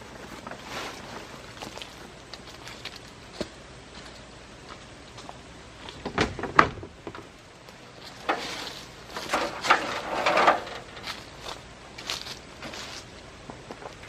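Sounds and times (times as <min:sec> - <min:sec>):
metal ladder clattering and scraping: 0:08.0 - 0:11.6.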